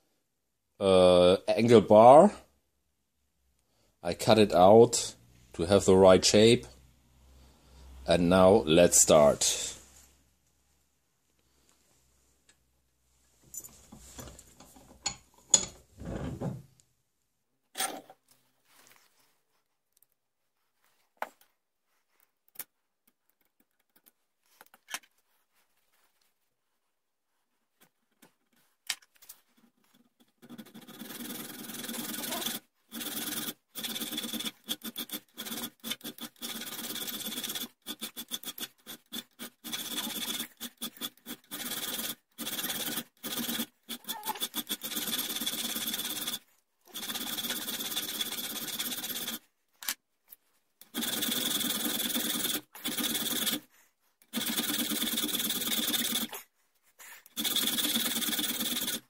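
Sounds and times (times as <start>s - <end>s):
file rasping on steel: 30.4s - 49.4s.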